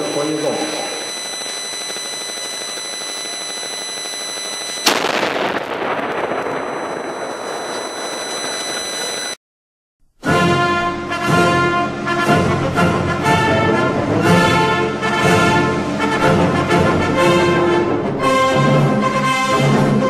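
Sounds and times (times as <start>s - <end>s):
cannon firing with echoing rumble: 4.8s - 8.8s.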